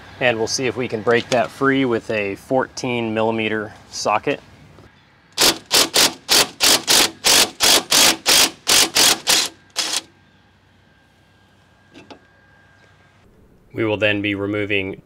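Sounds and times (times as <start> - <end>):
ratchet clicking: 5.4 - 10.1.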